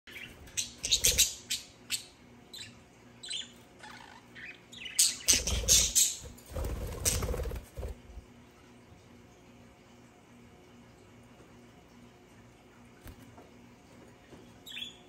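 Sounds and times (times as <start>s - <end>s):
budgerigars chirping: 0.1s - 6.3s
wing flaps: 5.4s - 8.2s.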